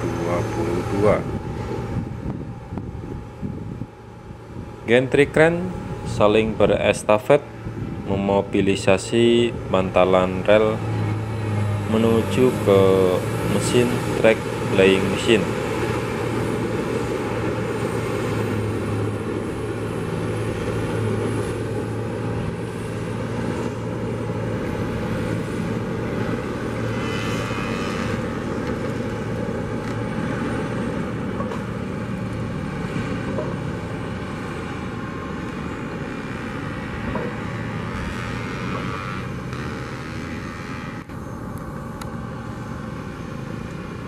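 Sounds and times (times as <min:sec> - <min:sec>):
distant machinery engine rumble: 0:00.0 - 0:44.0
outdoor background noise: 0:00.0 - 0:44.0.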